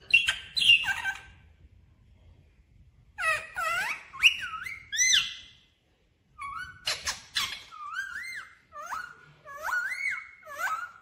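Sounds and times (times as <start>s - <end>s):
parakeet whistling: 0.0s - 1.4s, 3.2s - 5.6s, 6.4s - 11.0s.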